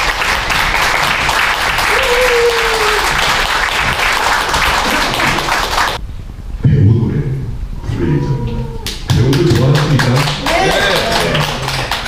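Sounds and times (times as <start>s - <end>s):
audience applauding: 0.0s - 6.0s, 8.8s - 12.0s
person calling out: 7.8s - 9.1s.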